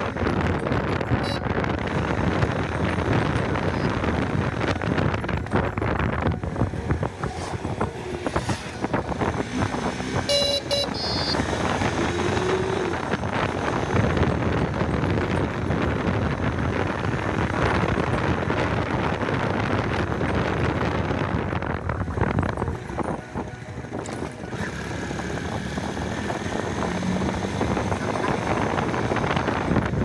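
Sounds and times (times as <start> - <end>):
wind rush: 0.0 - 23.5, 25.5 - 30.0
motorcycle road noise: 0.0 - 30.0
vehicle horn toots: 1.2 - 1.7, 10.2 - 11.5.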